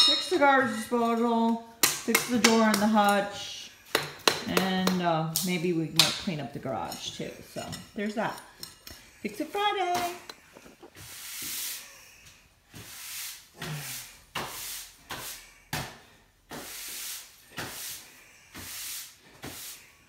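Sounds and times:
push broom sweeping concrete: 0:09.9 - 0:12.0, 0:12.7 - 0:15.5, 0:16.5 - 0:20.0.

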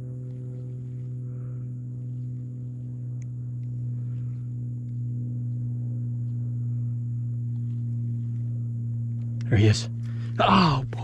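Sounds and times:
low-pitched hum: 0:00.0 - 0:11.0.

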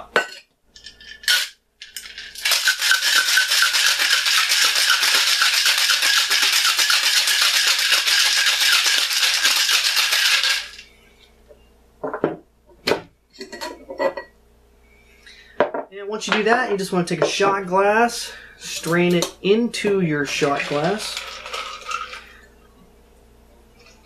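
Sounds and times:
ice cubes rattling in shaker: 0:00.8 - 0:10.9, 0:20.3 - 0:22.4.

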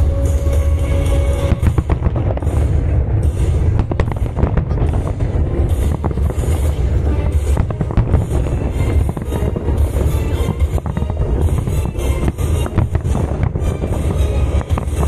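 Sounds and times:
fireworks bangs and crackles: 0:00.0 - 0:15.0
low rumble: 0:00.0 - 0:15.0.

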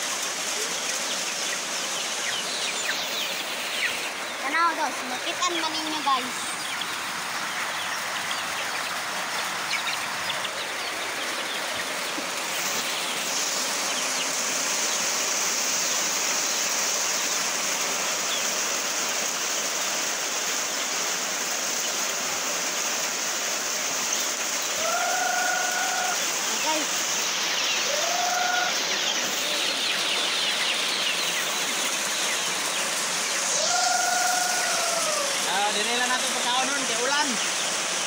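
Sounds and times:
chickens feeding: 0:00.0 - 0:15.2, 0:23.9 - 0:37.7
high steady hiss: 0:00.0 - 0:38.0
chicken call: 0:24.7 - 0:26.8, 0:27.7 - 0:29.9, 0:33.4 - 0:35.6.

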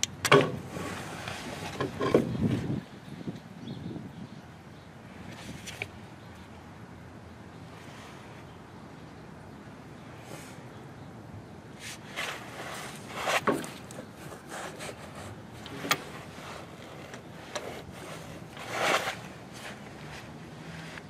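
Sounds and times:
steel chain scraping and clinking: 0:12.2 - 0:19.8.

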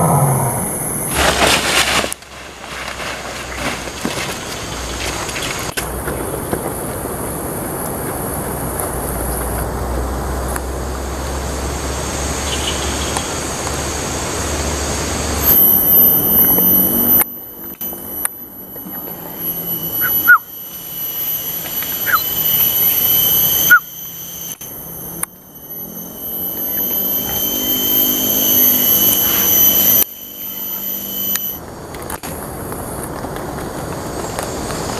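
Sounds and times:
high-pitched insect drone: 0:00.0 - 0:02.2, 0:07.0 - 0:31.8
rushing noise with low rumble: 0:00.0 - 0:18.8, 0:30.8 - 0:34.9
short chirps: 0:18.9 - 0:31.6.

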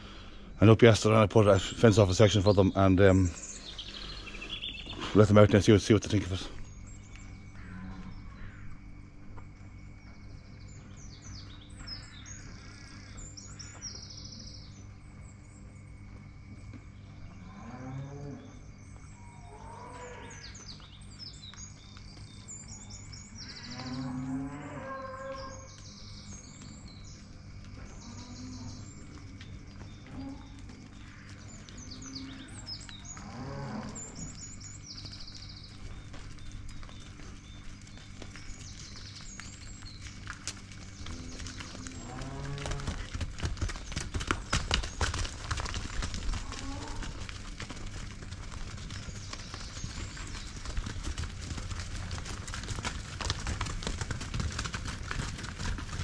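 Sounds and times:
low steady hum: 0:00.0 - 0:56.0
songbirds chirping and singing: 0:00.0 - 0:56.0
cows mooing: 0:07.6 - 0:08.2, 0:17.4 - 0:18.6, 0:23.4 - 0:25.7, 0:31.9 - 0:34.3, 0:41.0 - 0:43.3, 0:46.3 - 0:47.4.

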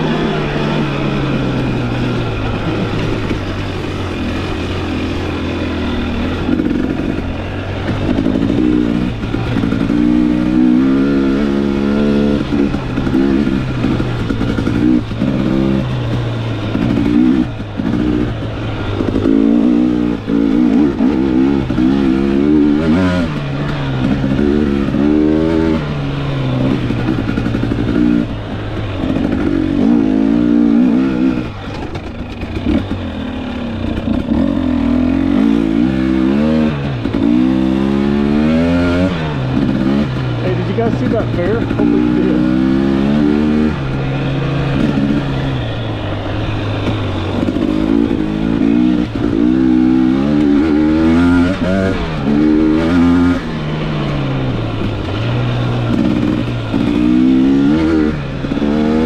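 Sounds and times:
dirt bike engine revving: 0:00.0 - 0:59.0.

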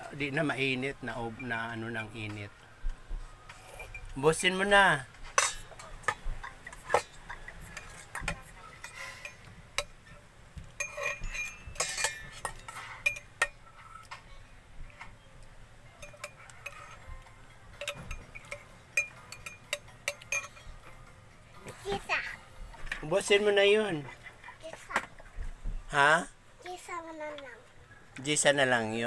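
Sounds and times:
spoon clinking against metal bowl: 0:03.6 - 0:04.2, 0:05.3 - 0:14.3, 0:15.9 - 0:21.1.

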